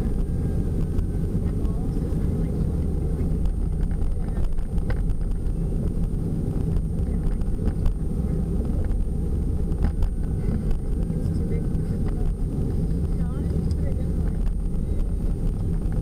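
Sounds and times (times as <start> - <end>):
engine and tyre rumble in van: 0.0 - 16.0.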